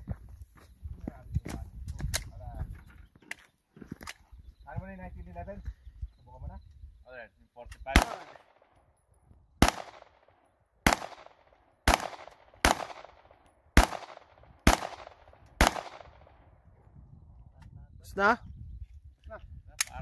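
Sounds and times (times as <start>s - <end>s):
gunshots echoing: 7.9s - 8.7s, 9.6s - 16.4s.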